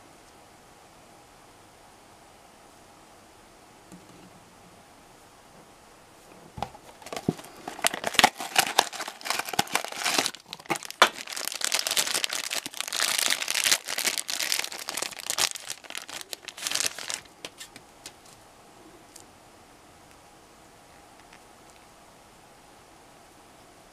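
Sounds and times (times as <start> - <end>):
foil bag crinkling and tearing: 6.9 - 17.7.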